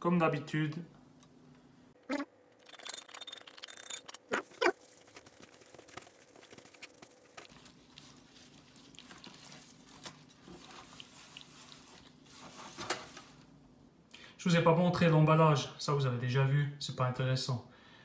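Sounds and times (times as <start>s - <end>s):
wet squishing and patting: 4.3s - 13.0s.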